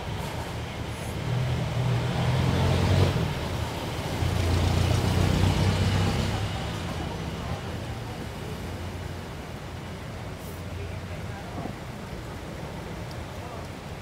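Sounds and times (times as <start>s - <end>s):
road noise: 0.0s - 14.0s
vehicles passing: 0.0s - 14.0s.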